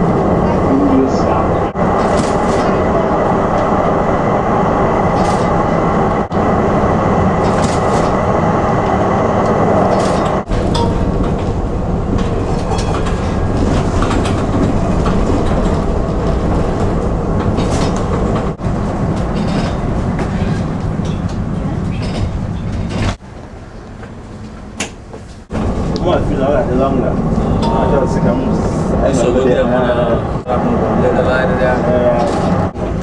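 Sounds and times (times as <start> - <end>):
tram wheels rumbling: 0.0 - 33.0
wheels clattering over rail joints: 7.2 - 23.2.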